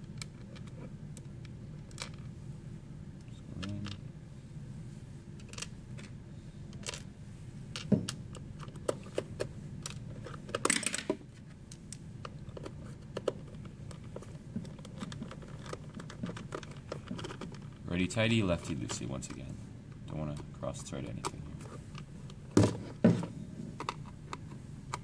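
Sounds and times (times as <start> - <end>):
screwdriver being handled: 12.6 - 17.7.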